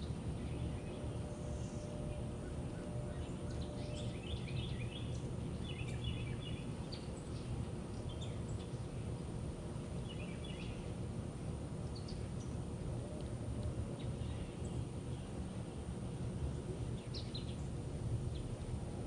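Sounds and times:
birds chirping: 0:00.0 - 0:09.2, 0:10.0 - 0:11.0, 0:16.5 - 0:18.6
low background rumble: 0:00.0 - 0:19.0.

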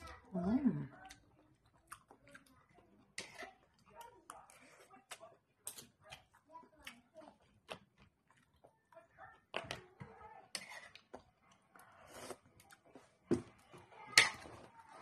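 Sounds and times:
chewing and mouth noises: 0:00.9 - 0:09.9, 0:10.6 - 0:13.2.

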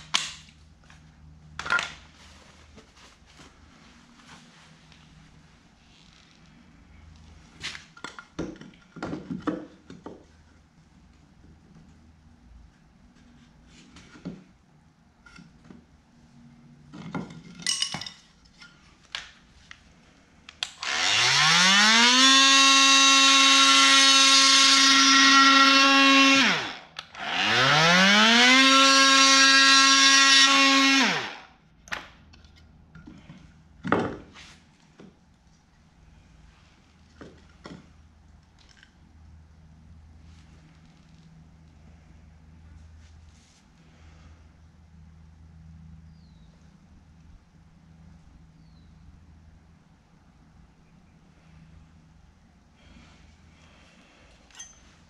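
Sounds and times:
oscillating multi-tool cutting wood: 0:20.6 - 0:31.5.

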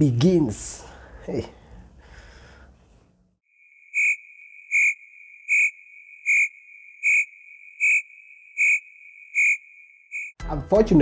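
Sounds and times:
high-pitched electronic beeps: 0:04.0 - 0:10.3.

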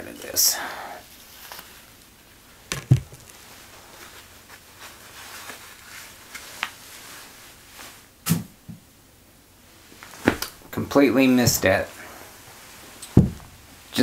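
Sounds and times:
paper towel crinkling: 0:01.0 - 0:02.0, 0:02.9 - 0:08.1.

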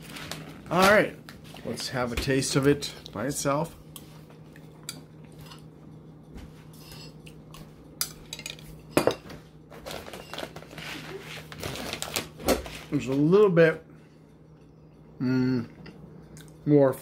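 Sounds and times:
low hum: 0:13.4 - 0:17.0.

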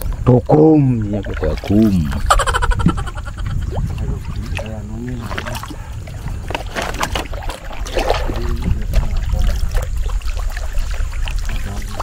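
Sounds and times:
steady low rumble: 0:00.0 - 0:06.5
water splashing around boat: 0:00.0 - 0:12.0.

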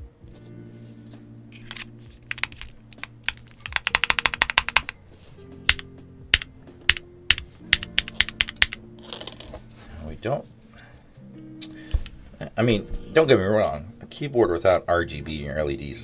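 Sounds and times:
mechanical keyboard typing: 0:01.7 - 0:05.0, 0:05.7 - 0:08.8.

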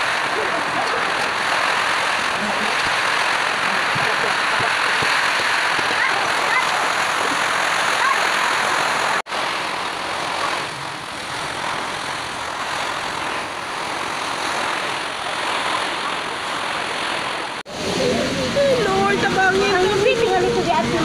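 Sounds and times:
rain beating on window: 0:00.0 - 0:09.3
gusting wind: 0:00.0 - 0:21.0.

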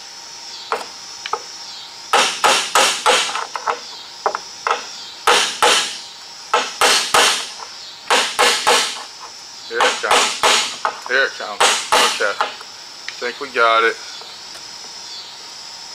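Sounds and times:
hammer tapping on metal: 0:02.2 - 0:09.1, 0:09.8 - 0:12.6.

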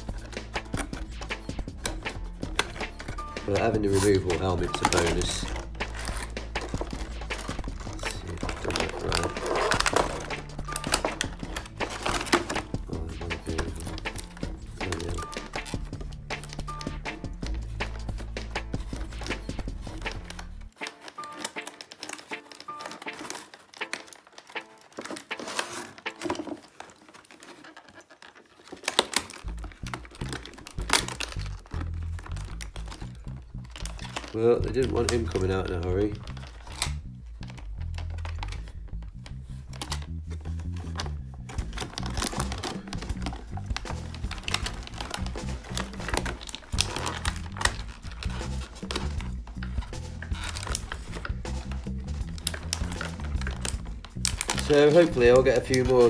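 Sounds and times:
background music: 0:00.0 - 0:27.4, 0:28.8 - 0:56.0
plastic blister tray crackling: 0:00.0 - 0:56.0
sharp cracks of plastic: 0:28.5 - 0:35.6, 0:52.3 - 0:55.9.

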